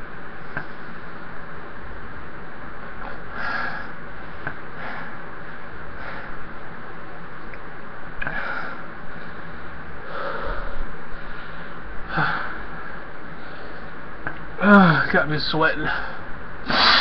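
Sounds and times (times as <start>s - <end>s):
background hiss: 0.0s - 17.0s
man sniffing and breathing hard: 3.0s - 4.0s, 8.2s - 12.8s, 16.0s - 17.0s.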